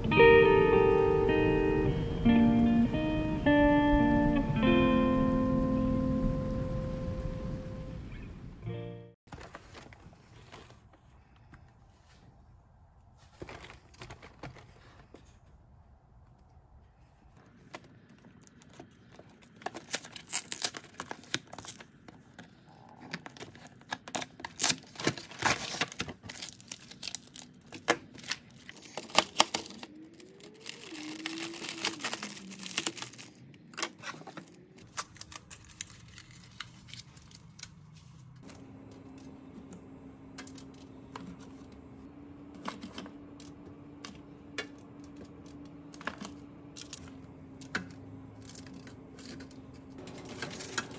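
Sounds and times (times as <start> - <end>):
foil crinkling: 18.3 - 38.5
plastic bag crinkling and tearing: 19.2 - 22.0, 22.7 - 37.9
steady low hum: 34.4 - 50.9.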